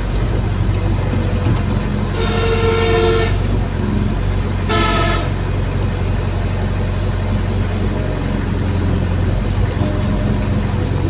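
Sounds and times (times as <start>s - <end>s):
excavator diesel engine running: 0.0s - 11.0s
vehicle horn honk: 2.1s - 3.5s, 4.7s - 5.4s.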